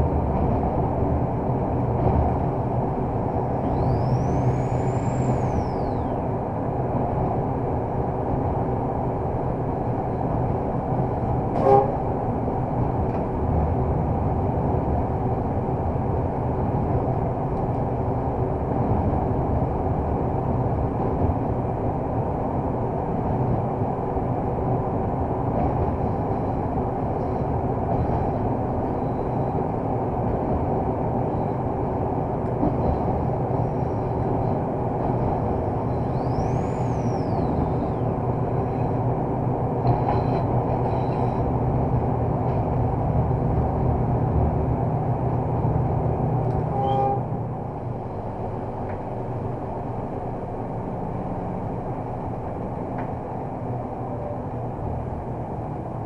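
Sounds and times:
wheel and rail noise: 0.0s - 56.0s
short horn toot: 11.6s - 12.0s, 46.7s - 47.4s.

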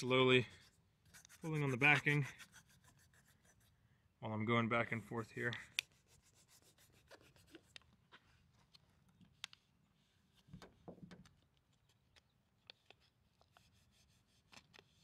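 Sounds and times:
protector film peeling and rubbing: 5.7s - 8.3s, 11.4s - 15.0s.

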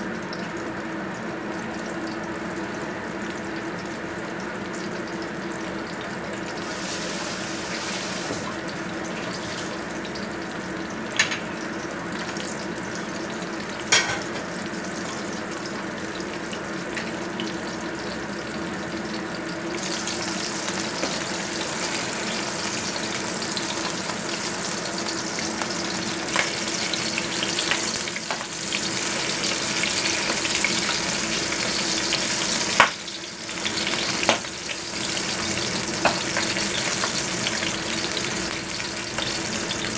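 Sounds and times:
fish frying in hot oil: 0.0s - 39.9s.

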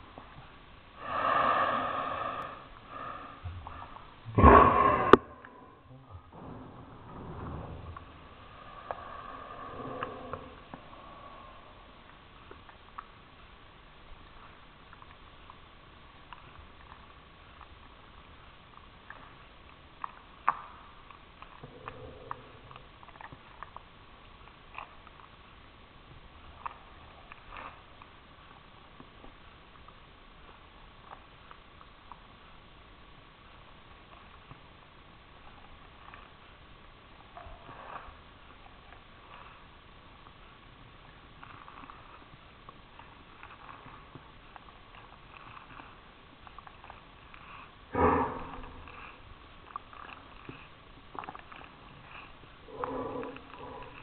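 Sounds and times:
cat licking and chewing: 7.9s - 54.0s.

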